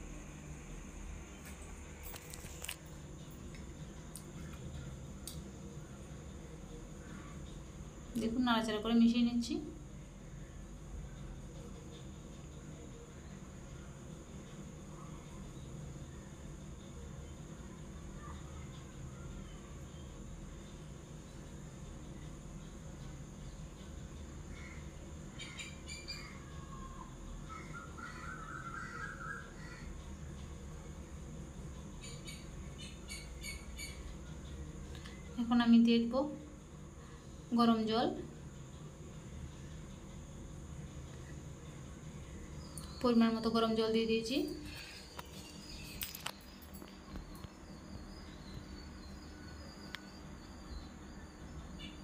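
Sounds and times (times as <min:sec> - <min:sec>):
low steady hum: 0:00.0 - 0:52.0
faint high chirping: 0:10.0 - 0:36.1, 0:37.0 - 0:52.0
birds chirping: 0:27.4 - 0:30.1.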